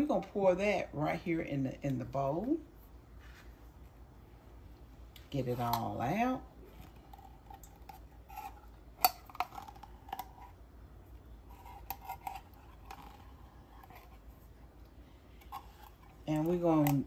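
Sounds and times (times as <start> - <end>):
spatula scraping metal can: 11.5 - 14.3.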